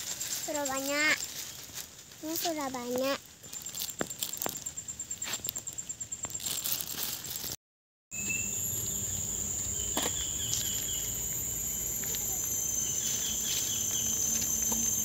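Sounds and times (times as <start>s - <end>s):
high-pitched insect drone: 0.0s - 7.6s, 8.2s - 15.0s
insects chirping: 0.0s - 15.0s.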